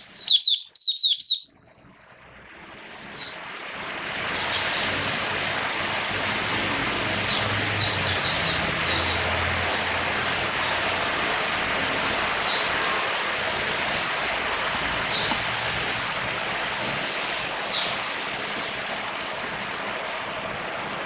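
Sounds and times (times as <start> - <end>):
bird chirping high: 0.0 - 1.9, 7.3 - 9.9
steady hiss: 1.7 - 21.0.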